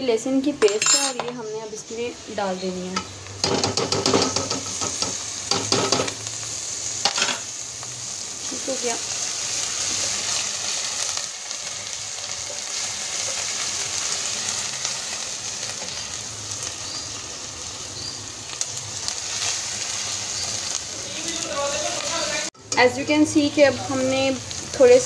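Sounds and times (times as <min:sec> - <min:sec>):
onions sizzling in hot oil: 0:01.4 - 0:25.0.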